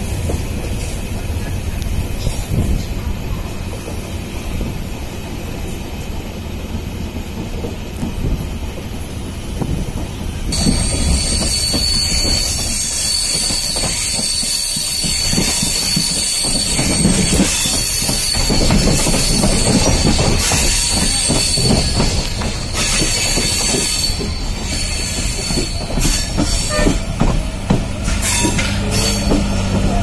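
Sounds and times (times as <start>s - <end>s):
train rumbling on track: 0.0s - 30.0s
high wheel squeal: 10.5s - 30.0s.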